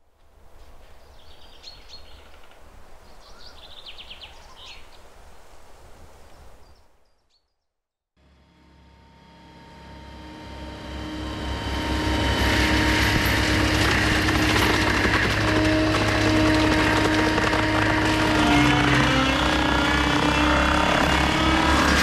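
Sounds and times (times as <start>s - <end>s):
birds chirping: 0.9s - 5.1s
low outdoor rumble: 8.2s - 22.0s
track loader engine and mulching head: 8.2s - 22.0s.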